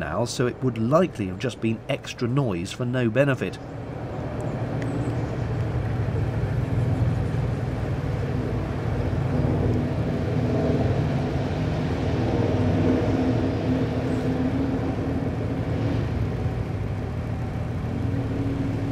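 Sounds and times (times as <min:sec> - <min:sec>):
boat diesel engine droning: 0:00.0 - 0:18.9.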